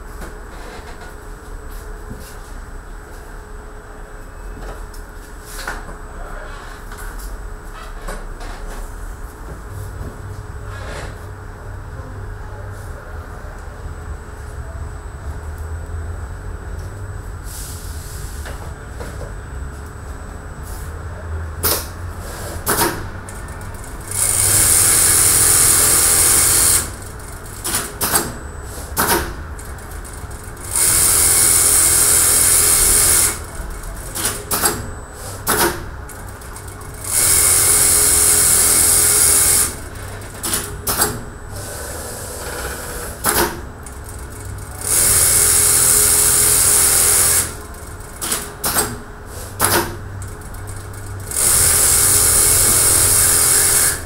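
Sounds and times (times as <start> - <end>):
machine clicks and knocks: 22.6 - 41.3, 43.2 - 53.8
sewing machine stitching: 23.8 - 28.4, 30.4 - 35.8, 36.6 - 39.8, 42.4 - 49.0, 50.7 - 54.0.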